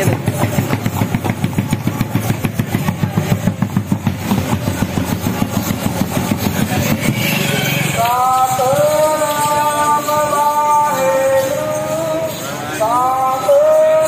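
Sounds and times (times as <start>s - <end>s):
engine idling: 0.0s - 10.7s.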